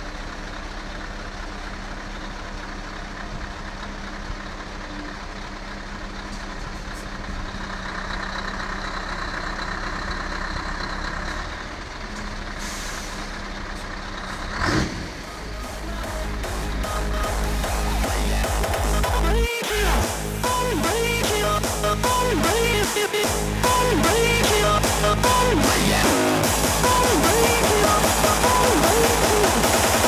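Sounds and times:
diesel truck engine at low revs: 0.0s - 30.0s
air brake hiss: 12.6s - 13.4s.

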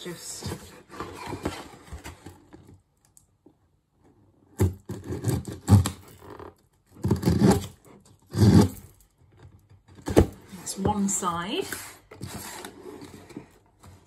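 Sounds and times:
cardboard scraping and ripping: 4.6s - 8.9s.

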